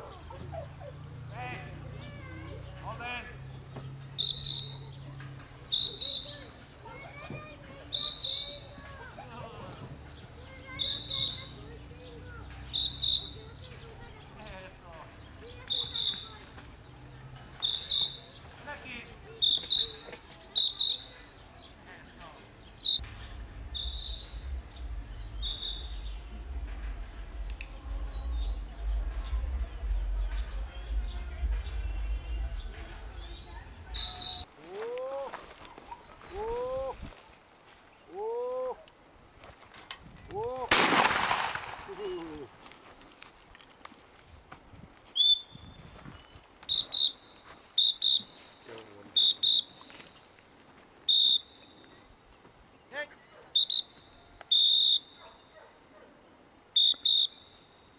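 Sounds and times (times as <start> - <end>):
dog whistle toots: 12.7 - 13.4, 45.2 - 45.5, 46.7 - 47.2, 47.8 - 48.4, 49.2 - 49.8, 51.1 - 51.6, 53.6 - 55.4, 56.8 - 57.5
wind buffeting microphone: 23.1 - 34.5, 39.9 - 42.6, 44.2 - 46.5.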